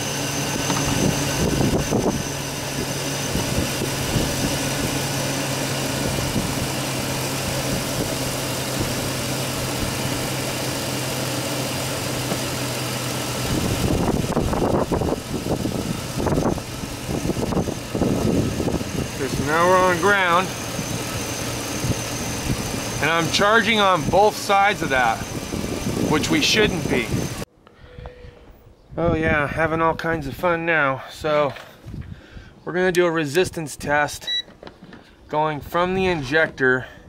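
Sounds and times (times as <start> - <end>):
truck engine idling: 0.0 - 27.5
rough gusty noise: 13.4 - 30.3.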